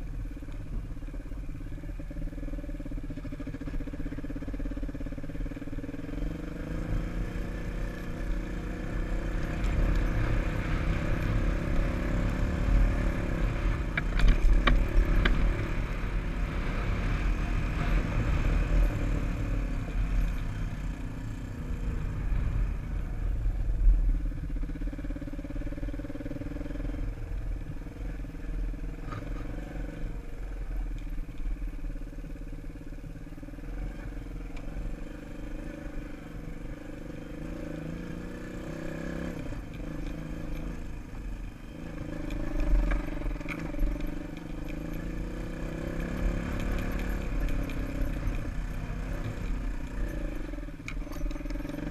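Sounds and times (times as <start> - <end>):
dirt bike engine revving: 37.1 - 51.9.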